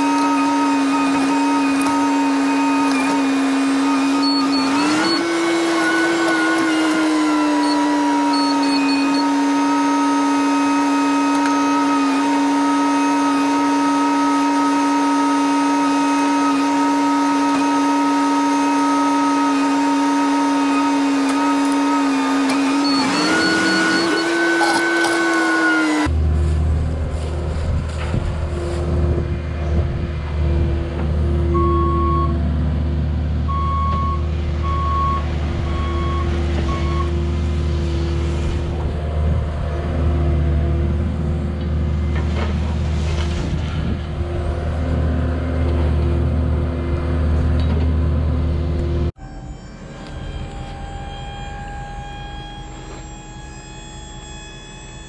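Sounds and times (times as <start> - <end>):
diesel engine at high revs: 0.0 - 49.2
hydraulic whine: 0.0 - 55.0
excavator engine rumble: 21.0 - 55.0
short beeps: 22.8 - 24.7, 31.6 - 32.4.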